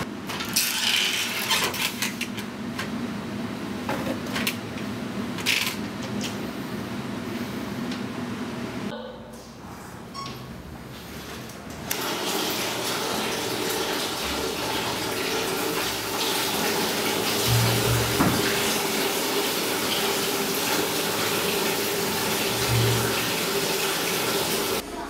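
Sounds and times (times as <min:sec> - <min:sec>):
tap water splashing into basin: 0:17.4 - 0:18.8.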